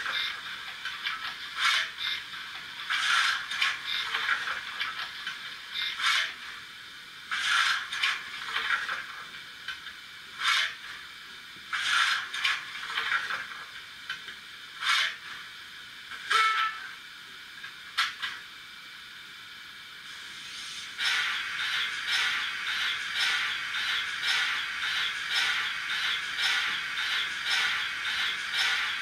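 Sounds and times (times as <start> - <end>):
short steam hisses: 20.0 - 29.0.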